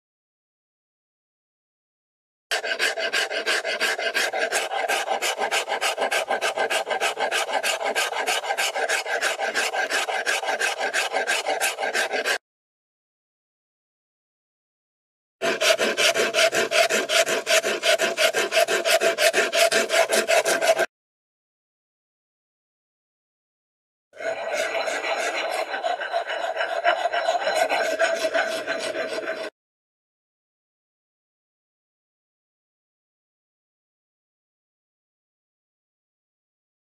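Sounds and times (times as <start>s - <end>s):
hand rasp filing wood: 2.5s - 12.4s, 15.4s - 20.9s, 24.2s - 29.6s.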